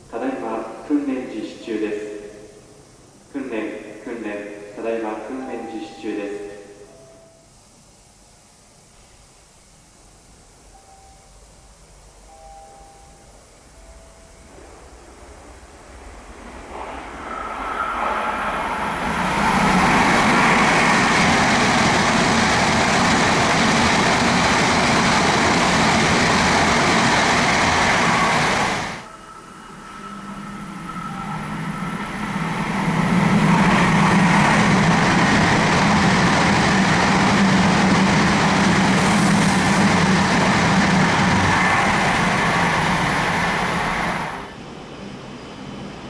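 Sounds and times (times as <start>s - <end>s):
train rushing past: 13.6s - 46.0s.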